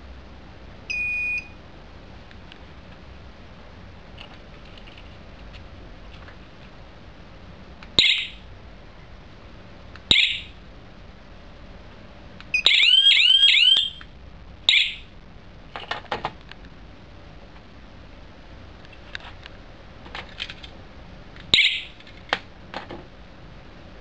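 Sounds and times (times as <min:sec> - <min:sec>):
alarm system beeping: 0:00.9 - 0:01.6, 0:08.0 - 0:08.4, 0:10.1 - 0:10.6, 0:12.5 - 0:14.0, 0:14.7 - 0:15.1.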